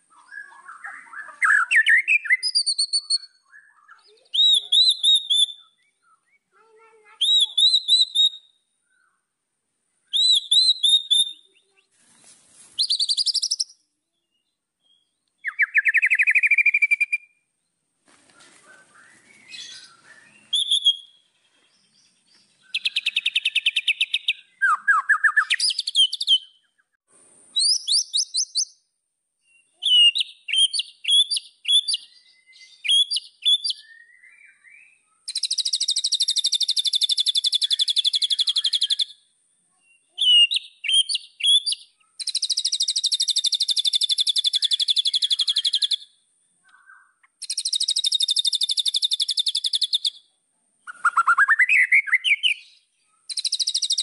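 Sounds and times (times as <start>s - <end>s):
bird singing whistled song: 0.0s - 6.5s, 7.1s - 9.2s, 10.0s - 11.9s, 12.8s - 17.4s, 18.6s - 39.2s, 39.8s - 54.0s
bird rattling trill: 47.4s - 50.0s.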